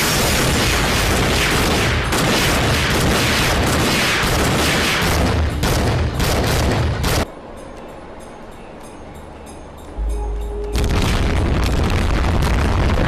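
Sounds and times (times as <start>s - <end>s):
sharp gunshots: 0.0s - 7.2s
gunfire and blasts: 0.0s - 7.3s.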